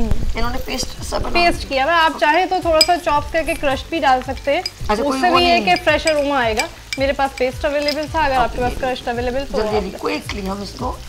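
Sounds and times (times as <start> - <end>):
onions sizzling in hot oil: 0.0 - 11.0
spatula stirring: 2.4 - 10.5.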